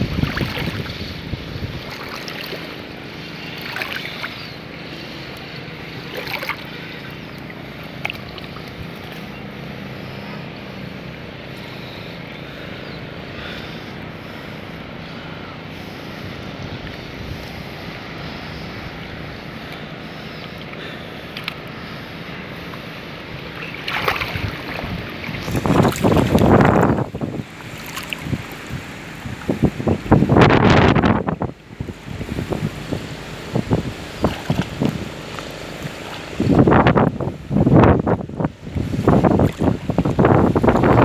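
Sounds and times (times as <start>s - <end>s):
wind buffeting microphone: 0.0s - 20.9s, 21.5s - 41.0s
water rippling: 0.0s - 41.0s.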